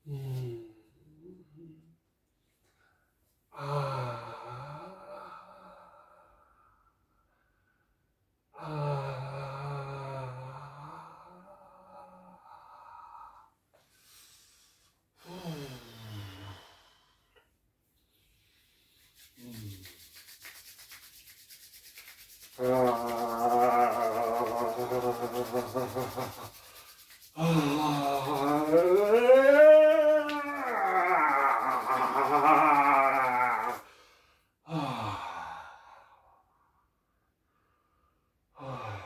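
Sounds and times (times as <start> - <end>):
palms rubbing together: 18.0 - 33.8
man vocalizing long tones: 22.5 - 26.6, 27.4 - 33.9.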